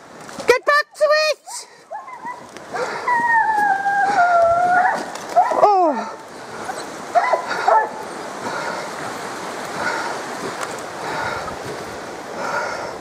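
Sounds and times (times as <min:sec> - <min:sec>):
hounds crying: 0:01.9 - 0:08.7
steady rushing noise: 0:06.2 - 0:13.0.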